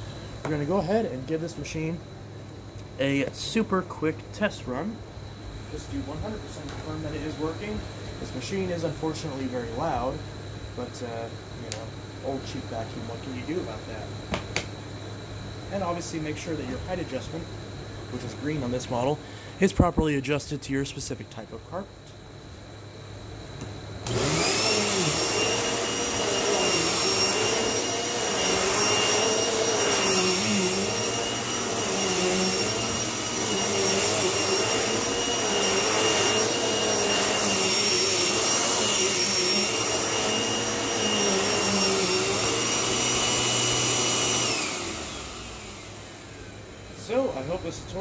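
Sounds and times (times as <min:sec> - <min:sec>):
vacuum cleaner whine and rush: 0:05.7 - 0:14.5, 0:15.4 - 0:17.5, 0:18.1 - 0:20.1, 0:23.8 - 0:48.0.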